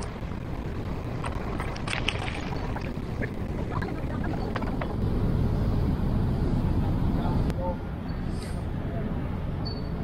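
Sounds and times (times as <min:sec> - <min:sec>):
wind buffeting microphone: 0:00.0 - 0:07.5.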